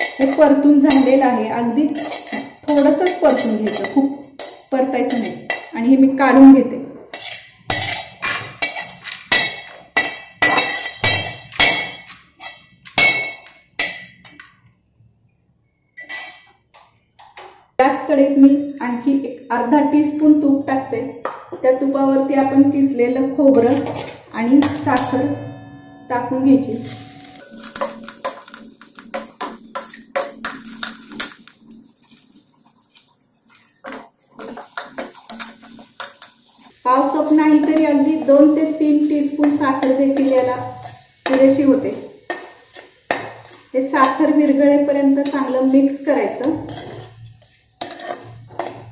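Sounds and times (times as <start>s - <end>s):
metal skimmer scraping steel pan: 27.4s - 36.7s
ringing metallic clinks: 27.4s - 36.7s.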